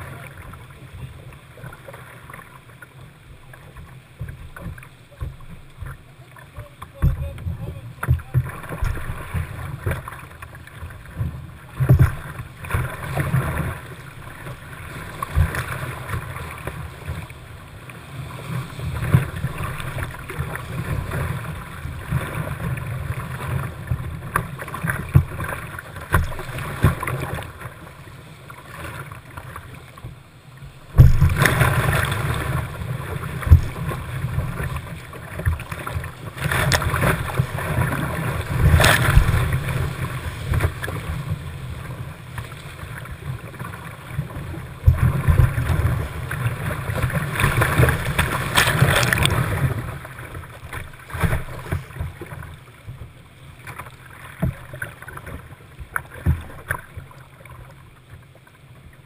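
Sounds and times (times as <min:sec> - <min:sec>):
paddle strokes splashing: 0:00.0 - 0:59.0.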